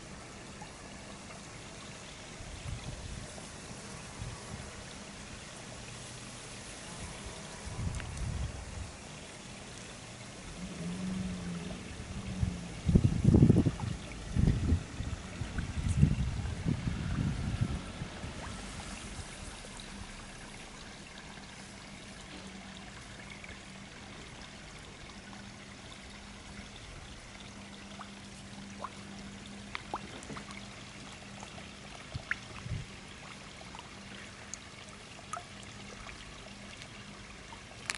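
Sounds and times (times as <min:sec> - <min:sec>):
water trickling: 0:00.0 - 0:37.9
small clicks and splashes: 0:07.8 - 0:08.3, 0:27.3 - 0:37.9
steady low hum: 0:10.2 - 0:37.8.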